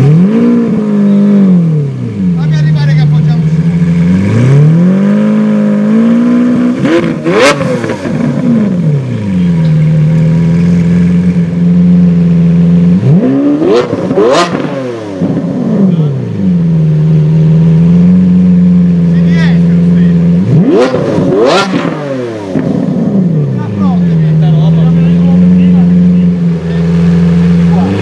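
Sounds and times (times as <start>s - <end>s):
engine idling: 0.0s - 4.7s, 7.1s - 13.3s, 15.2s - 21.8s, 22.4s - 28.0s
car engine revving: 0.0s - 28.0s.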